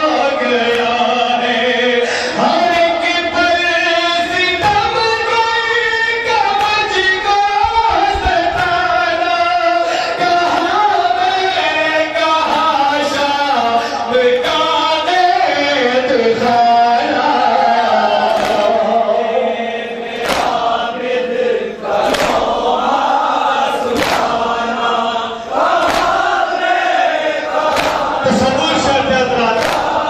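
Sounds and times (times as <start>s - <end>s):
men chanting a lament: 0.0s - 30.0s
hand slapping chest: 18.4s - 18.7s, 20.2s - 20.6s, 22.0s - 22.6s, 23.9s - 24.4s, 25.6s - 26.4s, 27.6s - 28.2s, 29.6s - 30.0s.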